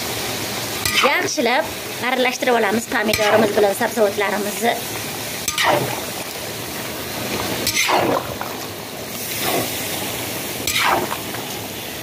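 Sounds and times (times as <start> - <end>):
frying hiss: 0.0 - 12.0
wet sloshing stirring strokes: 4.5 - 11.7.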